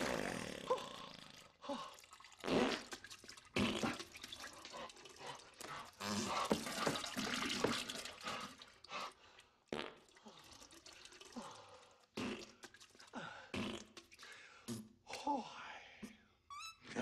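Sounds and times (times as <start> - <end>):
wet fart sounds: 0.0 - 1.6, 2.2 - 4.8, 5.6 - 8.5, 9.7 - 10.5, 12.1 - 14.9.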